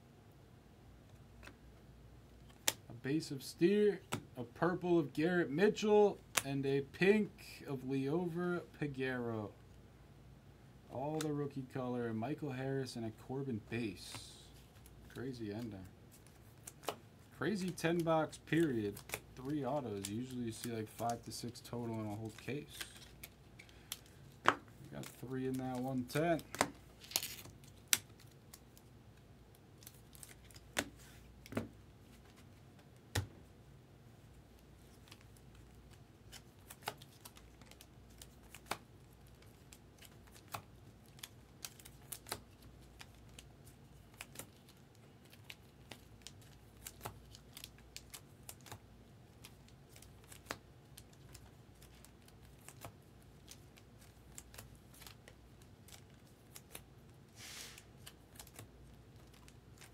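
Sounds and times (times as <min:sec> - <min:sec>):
faint steady hum: 0:00.0 - 0:59.9
cards clicking and tapping: 0:17.6 - 0:28.2, 0:30.2 - 0:31.8.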